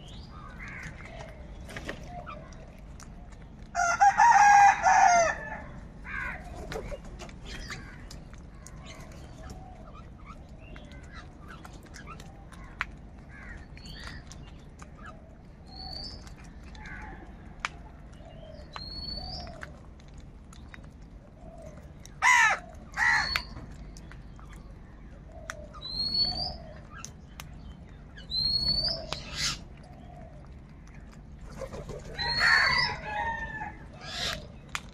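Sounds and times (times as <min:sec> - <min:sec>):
crows cawing: 0:03.8 - 0:06.5, 0:13.3 - 0:13.7, 0:22.2 - 0:23.5.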